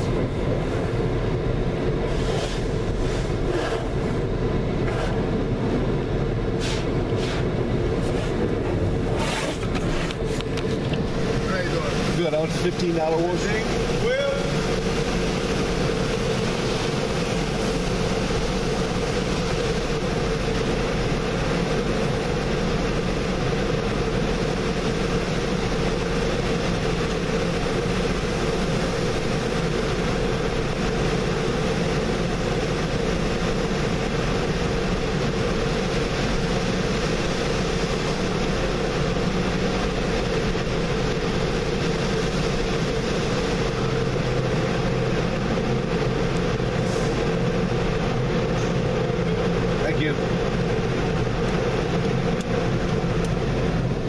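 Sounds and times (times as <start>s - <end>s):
machine hum: 0.0s - 54.0s
water spraying against windows: 9.1s - 54.0s.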